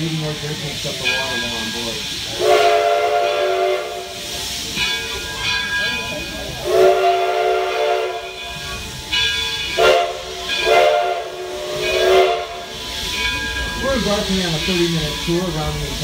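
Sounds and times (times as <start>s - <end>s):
steam hissing: 0.0s - 16.0s
steam locomotive whistle blasts: 1.2s - 5.6s, 6.6s - 13.8s.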